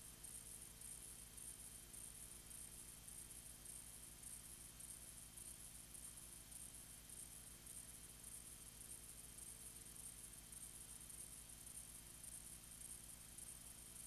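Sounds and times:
faint hum and hiss: 0.0 - 14.0.

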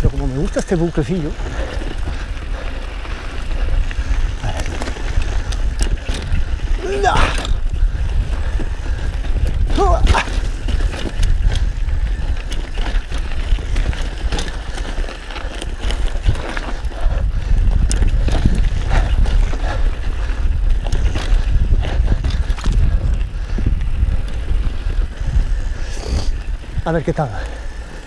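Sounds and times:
bike clattering over bumps: 0.0 - 28.0
wind and tyres rumbling: 0.0 - 28.0.

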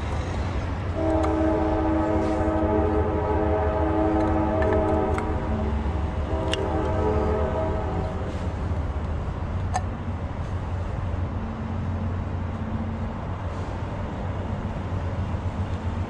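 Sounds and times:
vehicle engine rumbling: 0.0 - 16.0
sustained horn chord: 0.9 - 8.8.

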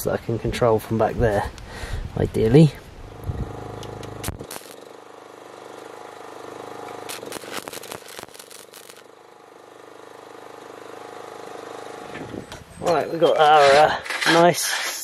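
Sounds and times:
welding arc crackling and sizzling: 3.1 - 12.7.

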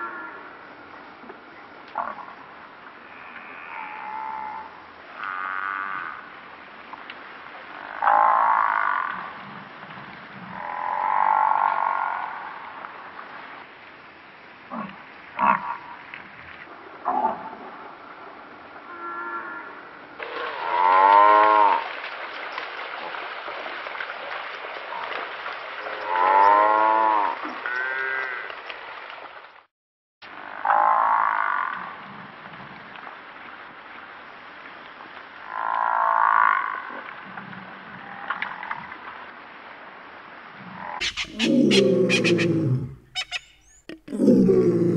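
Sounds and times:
buffalo calling: 41.0 - 44.9.

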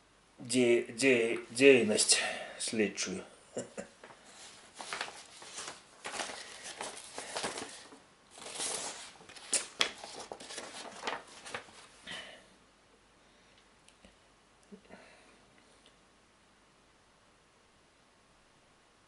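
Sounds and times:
paper rustling and crinkling: 4.0 - 12.0.

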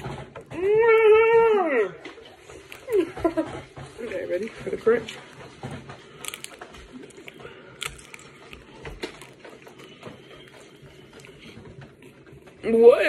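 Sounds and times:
crunchy candy chewing: 3.8 - 12.6.

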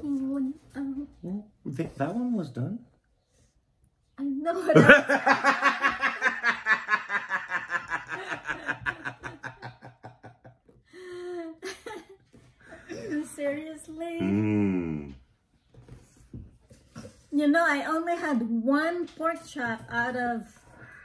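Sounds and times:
man and woman laughing: 4.7 - 10.8.

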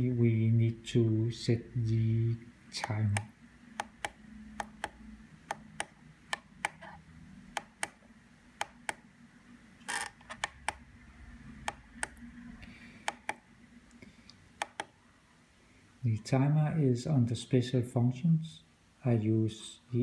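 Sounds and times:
radio transmitter button clicks: 14.6 - 14.9.

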